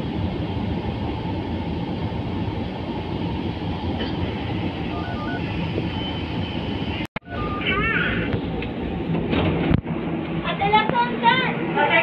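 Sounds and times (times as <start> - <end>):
metro train rumble: 0.0 - 12.0.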